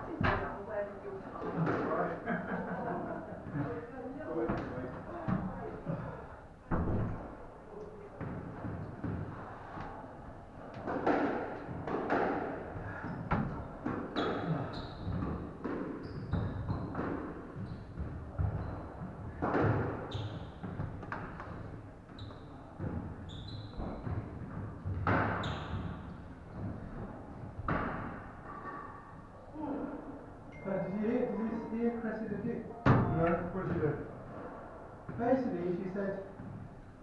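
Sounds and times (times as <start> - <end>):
shoes squeaking on wooden floor: 14.0 - 26.9.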